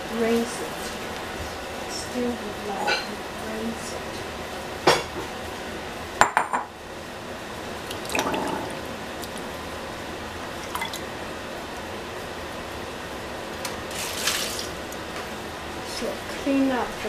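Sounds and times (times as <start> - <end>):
water splashing: 7.9 - 9.5, 13.9 - 14.7.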